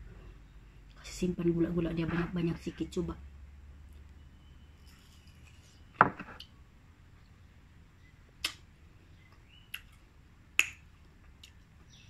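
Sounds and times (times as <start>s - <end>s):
lip smacks and tongue clicks: 8.4s - 8.7s, 9.3s - 10.0s, 10.6s - 11.7s.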